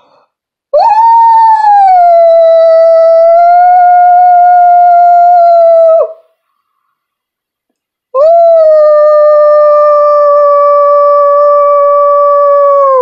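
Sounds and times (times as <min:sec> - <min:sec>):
woman imitating dog howl: 0:00.8 - 0:06.2, 0:08.2 - 0:13.0.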